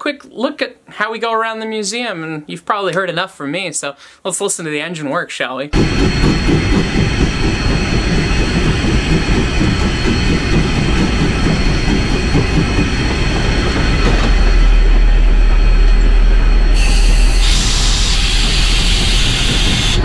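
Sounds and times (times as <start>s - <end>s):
steam locomotive rumble and clatter: 5.8s - 20.0s.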